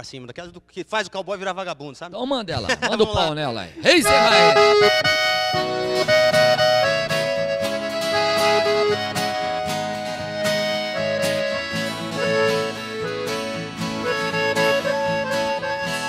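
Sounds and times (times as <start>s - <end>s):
accordion ballad: 3.8s - 16.0s
guitar accompaniment: 3.8s - 16.0s.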